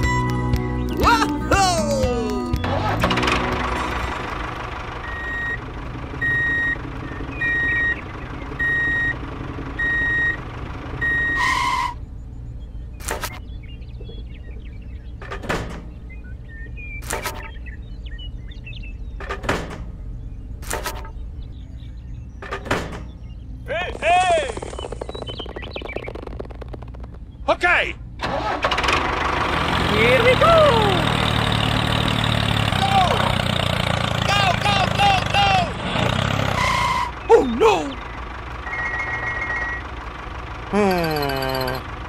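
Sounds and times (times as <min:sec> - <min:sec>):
vehicle hum: 0:00.0 - 0:42.0
reversing alarm beeps: 0:05.0 - 0:05.6, 0:06.2 - 0:08.0, 0:08.6 - 0:09.2, 0:09.8 - 0:10.4, 0:11.0 - 0:11.9, 0:38.6 - 0:39.9.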